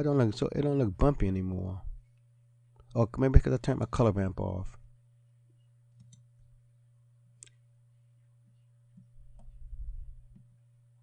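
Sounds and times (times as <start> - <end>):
steady electrical hum: 0.0 - 11.0
computer mouse clicks: 5.9 - 6.3.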